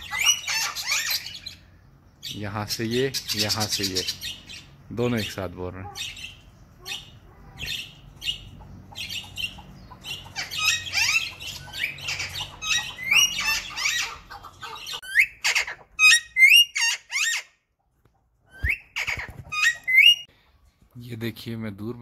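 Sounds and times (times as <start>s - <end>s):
parakeets squawking: 0.0s - 17.7s, 18.5s - 20.3s
parakeet screeches sweeping up: 18.5s - 20.2s.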